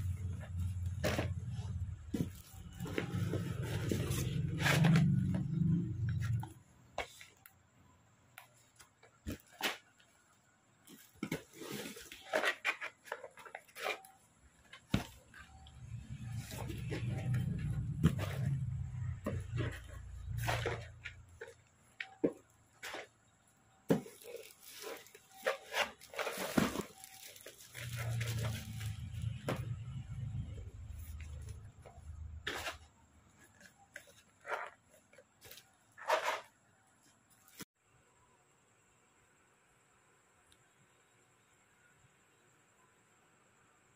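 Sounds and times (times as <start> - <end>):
plastic and cardboard crinkling: 0.0 - 7.5, 8.4 - 37.7
paperboard boxes tapping and knocking: 14.7 - 23.1.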